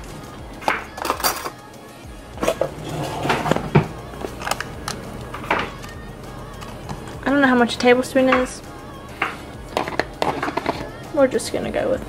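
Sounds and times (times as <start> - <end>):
metal cutlery clinking: 0.6 - 1.6.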